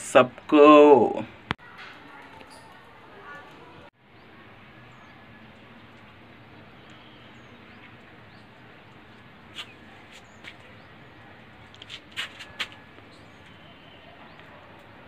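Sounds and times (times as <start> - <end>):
faint high chirps: 12.8 - 14.6.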